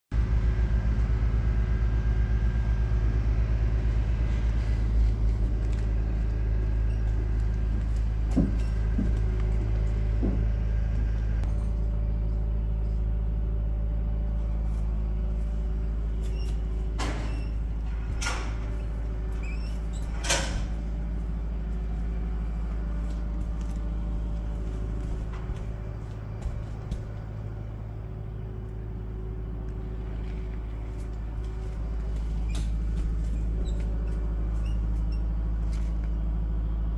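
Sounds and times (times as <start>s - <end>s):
low engine hum: 0.1s - 36.9s.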